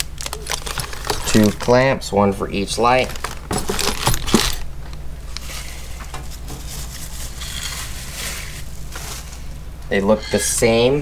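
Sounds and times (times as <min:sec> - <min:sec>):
plastic bag rustling: 0:00.0 - 0:10.4
steady low hum: 0:00.0 - 0:11.0.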